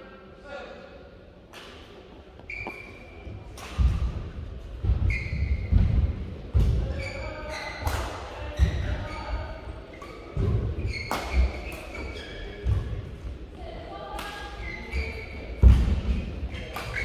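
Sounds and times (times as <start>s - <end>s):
shoes squeaking: 2.2s - 4.1s, 4.8s - 6.0s, 6.8s - 17.0s
racket hitting shuttlecock: 3.5s - 4.2s, 7.8s - 8.9s, 10.0s - 13.0s, 15.6s - 17.0s.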